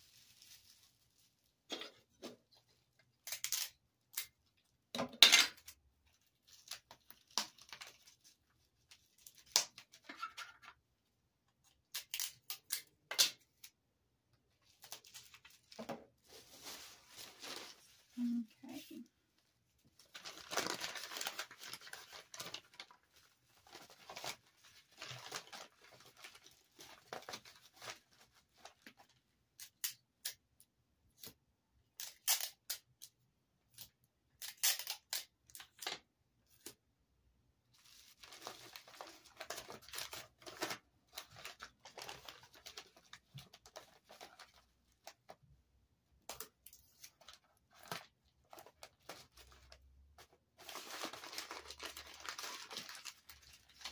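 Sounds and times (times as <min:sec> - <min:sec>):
bubble wrap crinkling: 0:00.0 - 0:01.7, 0:14.6 - 0:19.0, 0:19.9 - 0:29.2, 0:37.7 - 0:45.4, 0:46.9 - 0:53.9.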